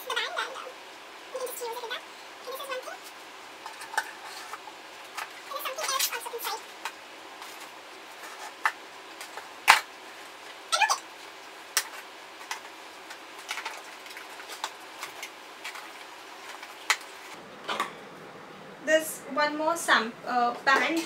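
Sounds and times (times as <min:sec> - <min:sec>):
plastic wrap crinkling: 0:07.4 - 0:17.4.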